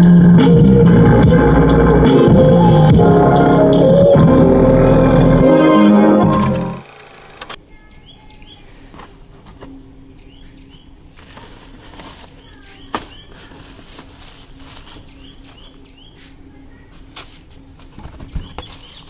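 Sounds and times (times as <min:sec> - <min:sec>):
plastic bags and cardboard rustling: 0:08.8 - 0:09.8, 0:11.1 - 0:19.0.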